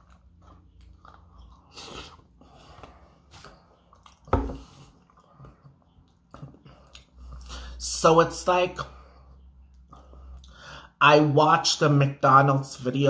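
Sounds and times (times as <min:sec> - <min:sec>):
person chewing food: 0:00.0 - 0:07.8
paper cup knocked on table: 0:04.3 - 0:04.6.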